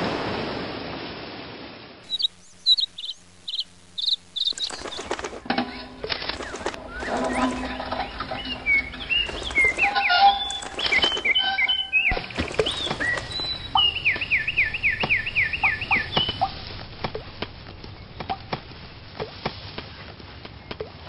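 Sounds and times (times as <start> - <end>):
cartoon bird chirps: 2.1 - 4.9
falling whistles: 6.2 - 16.4.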